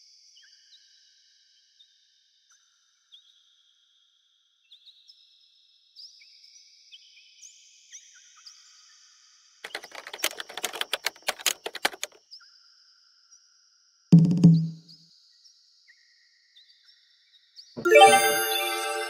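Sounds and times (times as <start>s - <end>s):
typing keys clattering: 9.6s - 12.2s
faint high tones stepping in pitch: 17.8s - 19.0s.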